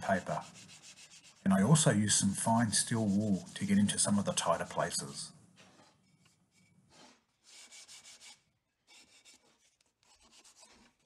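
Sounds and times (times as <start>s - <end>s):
sandpaper scratching on wood: 0.0s - 1.8s, 2.4s - 5.2s, 7.0s - 11.0s.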